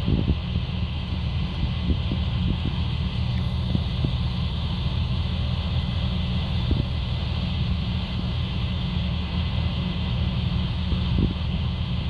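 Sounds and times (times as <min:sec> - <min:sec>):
wind noise on microphone: 0:00.0 - 0:00.6, 0:01.7 - 0:03.0, 0:11.0 - 0:11.7
combine harvester rumbling: 0:00.0 - 0:12.0.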